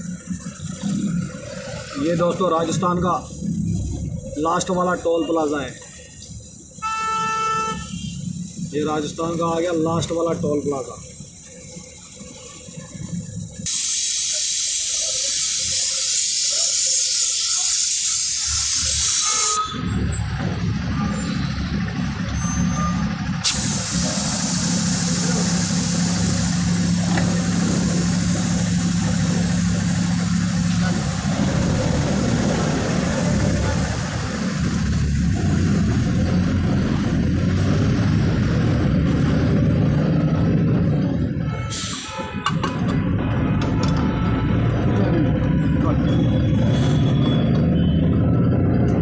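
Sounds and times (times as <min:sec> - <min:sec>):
diesel engine running: 0:00.0 - 0:49.0
loud steady hiss: 0:12.4 - 0:19.6, 0:23.4 - 0:34.8.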